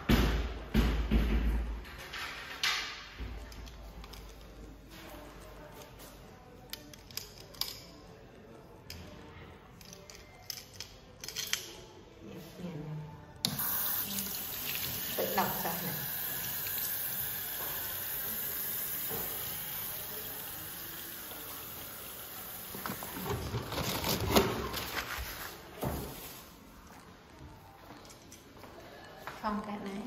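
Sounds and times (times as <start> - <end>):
faucet water running into sink: 13.5 - 23.2.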